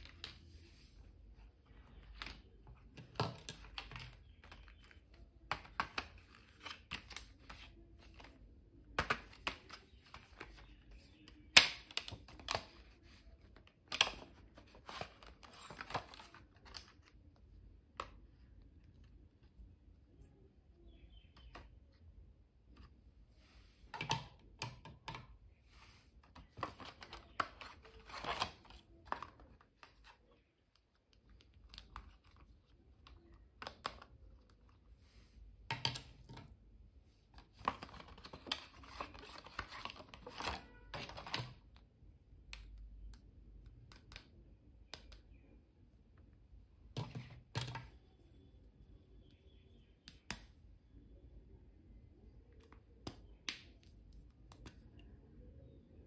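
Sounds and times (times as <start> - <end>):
plastic clicks and taps: 23.9 - 25.4, 35.7 - 36.5, 42.4 - 45.4.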